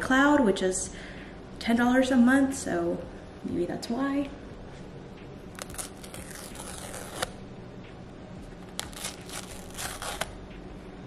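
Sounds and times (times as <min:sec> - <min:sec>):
paper strip tearing: 0:05.6 - 0:07.4, 0:08.7 - 0:10.4.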